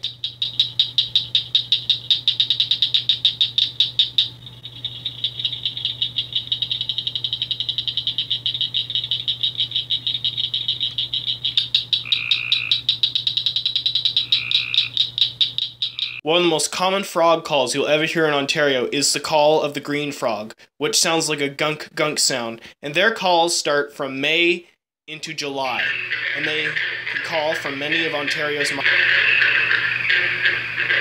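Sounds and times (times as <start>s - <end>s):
frogs clicking chorus: 0.0s - 16.2s, 25.8s - 31.0s
low-pitched notes: 25.5s - 31.0s.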